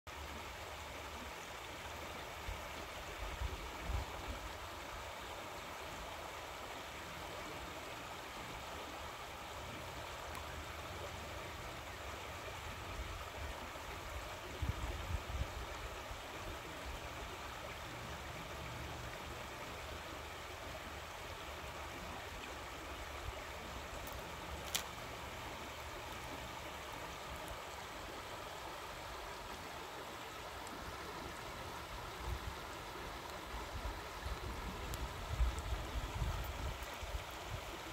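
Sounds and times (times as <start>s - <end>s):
stream water rushing: 0.1s - 37.9s.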